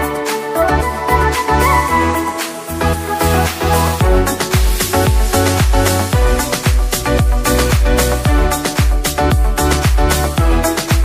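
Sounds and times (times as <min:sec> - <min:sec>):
deep bass drum: 0:04.0 - 0:11.0.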